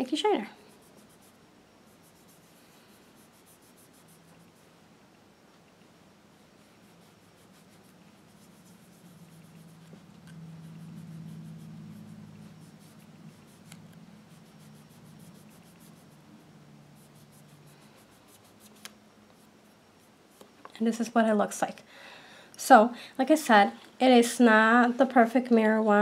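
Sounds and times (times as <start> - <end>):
low steady hum: 0.0 - 26.0
sponge rubbing on plastic nail: 0.6 - 4.6, 6.6 - 16.3, 16.9 - 20.4.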